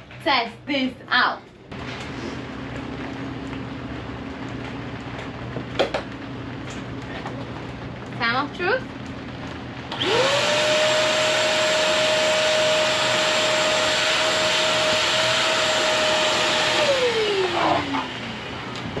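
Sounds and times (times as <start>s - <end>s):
shop vacuum motor whining: 9.8s - 19.0s.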